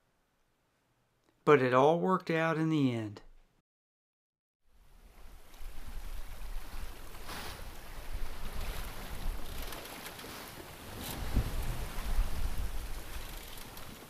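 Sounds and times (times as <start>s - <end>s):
water rushing along hull: 5.2s - 14.0s
wind buffeting microphone: 10.9s - 13.9s.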